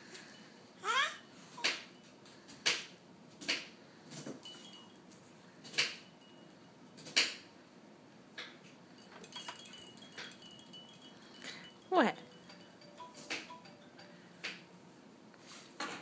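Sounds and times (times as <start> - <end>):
light ringing clinks: 0.0 - 0.8, 1.8 - 2.5, 4.1 - 7.6, 8.4 - 14.5.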